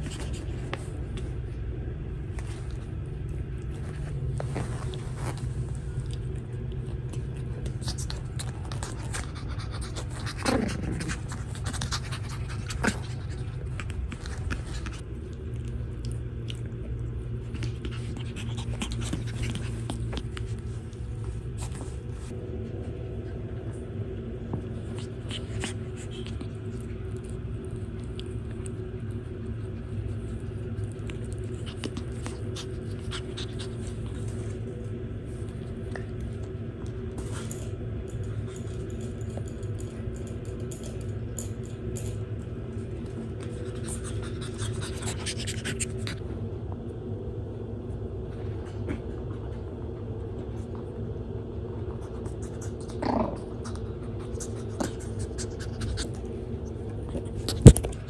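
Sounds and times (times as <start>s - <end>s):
small scratches and rustles: 0.0s - 1.4s, 2.3s - 15.0s, 17.4s - 22.4s
steady low hum: 0.0s - 58.0s
puppies panting: 7.4s - 15.0s, 17.4s - 20.6s, 30.6s - 34.6s, 43.4s - 46.3s.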